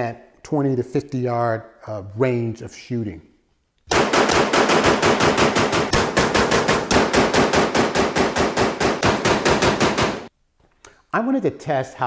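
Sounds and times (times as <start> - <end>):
rapid rifle gunfire: 3.9 - 10.3.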